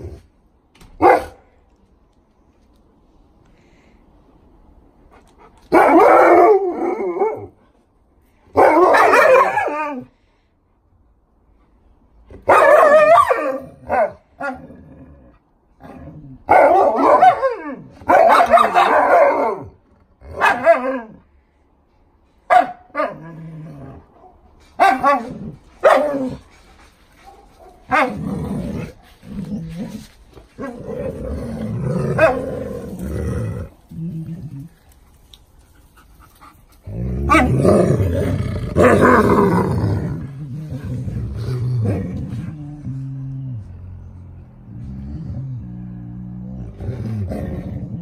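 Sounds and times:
dogs barking and growling: 0:05.2 - 0:07.6, 0:08.5 - 0:10.1, 0:12.3 - 0:21.4, 0:22.5 - 0:48.0.

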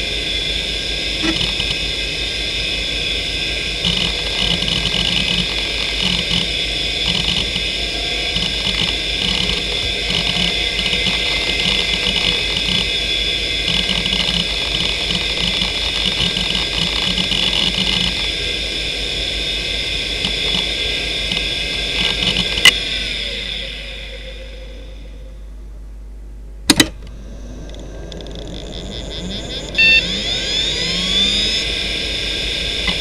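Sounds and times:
hard drive spinning whine: 0:00.0 - 0:33.0
hard drive seek chatter: 0:01.2 - 0:02.3, 0:03.0 - 0:25.3, 0:26.9 - 0:33.0
sharp click: 0:26.7 - 0:27.1.

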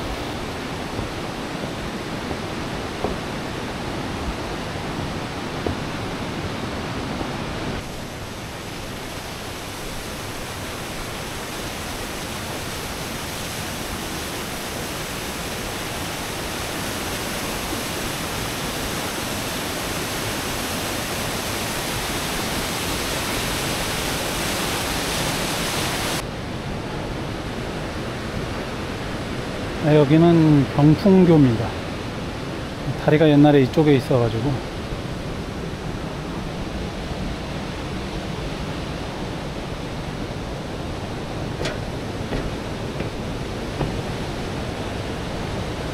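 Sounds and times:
stream rushing over rocks: 0:00.0 - 0:26.2, 0:36.0 - 0:45.9.

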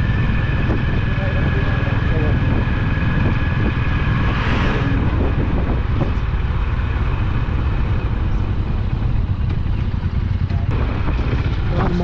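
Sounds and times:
truck passing: 0:00.0 - 0:11.7
motorcycle engine running: 0:00.0 - 0:12.0.

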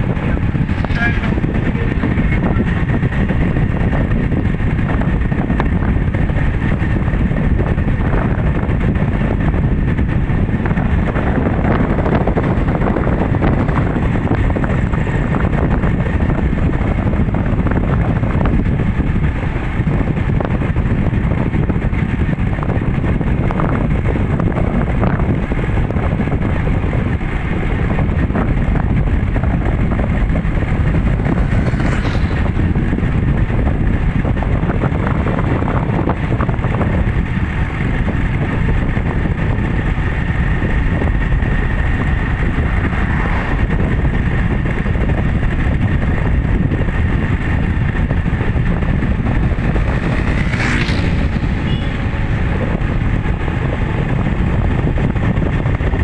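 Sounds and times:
vehicle engine and tyre noise: 0:00.0 - 0:56.0
wind buffeting microphone: 0:00.0 - 0:56.0.

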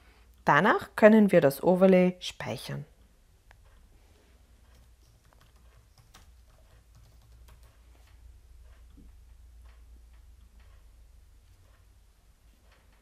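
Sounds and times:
low steady hum: 0:00.0 - 0:13.0
typing on computer keyboard: 0:04.7 - 0:07.8.

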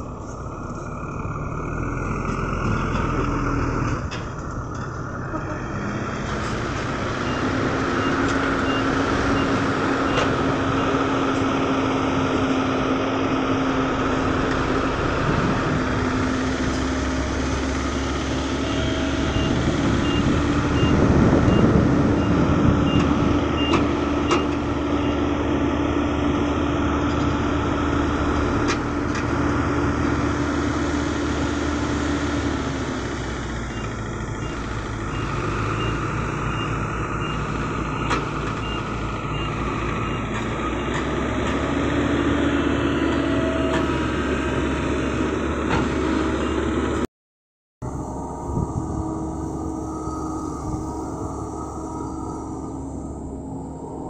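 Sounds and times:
diesel truck engine under load: 0:00.0 - 0:47.1, 0:47.8 - 0:54.0
reversing alarm beeping: 0:07.2 - 0:11.0, 0:17.6 - 0:25.3, 0:33.7 - 0:41.0, 0:42.8 - 0:44.6, 0:47.8 - 0:54.0.

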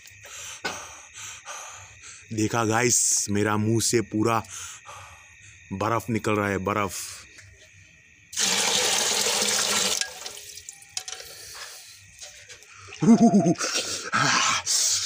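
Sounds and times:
water pouring into a metal pot: 0:08.4 - 0:10.9
water sloshing and dripping: 0:09.7 - 0:11.0
man's shivering cry: 0:13.0 - 0:14.5.

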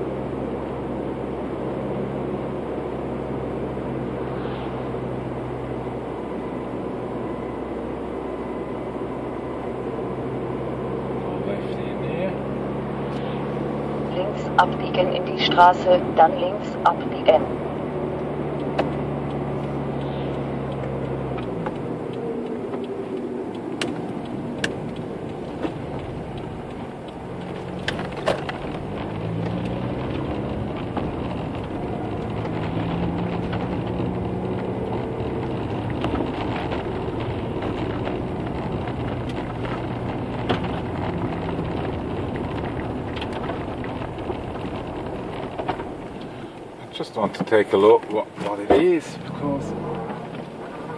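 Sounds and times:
car engine and tyre noise: 0:00.0 - 0:50.9
sharp clicks: 0:18.2 - 0:30.2.

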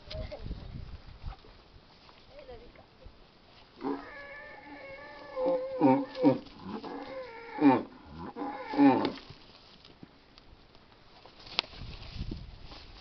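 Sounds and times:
cattle bellowing: 0:03.8 - 0:09.2.

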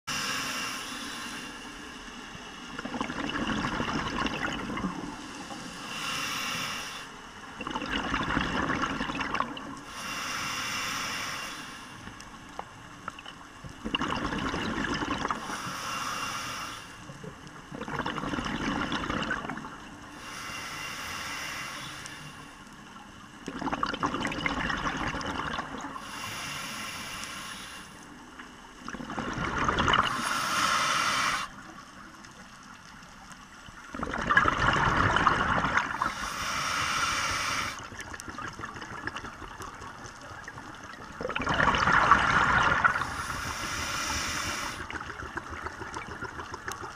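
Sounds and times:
regulator breathing hiss: 0:00.1 - 0:02.2, 0:05.1 - 0:07.3, 0:09.8 - 0:12.2, 0:15.4 - 0:17.1, 0:20.1 - 0:22.7, 0:26.0 - 0:28.2, 0:30.1 - 0:31.6, 0:36.0 - 0:37.9, 0:42.9 - 0:44.9
rush of bubbles: 0:02.7 - 0:05.2, 0:07.6 - 0:09.8, 0:13.8 - 0:15.5, 0:17.7 - 0:19.8, 0:23.5 - 0:26.0, 0:28.8 - 0:31.6, 0:33.9 - 0:36.5, 0:37.1 - 0:46.9.

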